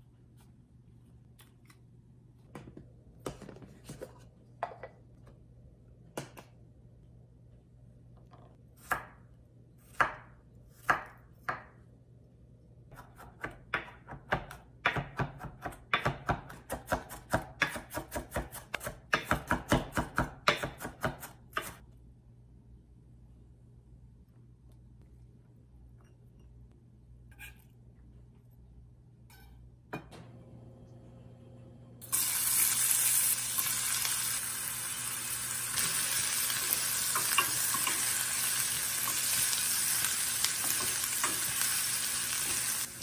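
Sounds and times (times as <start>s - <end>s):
knife chopping on wooden board: 9.9s - 11.8s, 12.9s - 21.8s.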